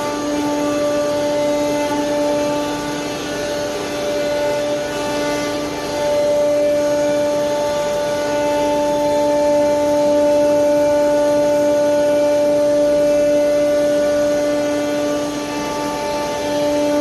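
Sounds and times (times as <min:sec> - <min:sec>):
router spindle whine: 0:00.0 - 0:17.0.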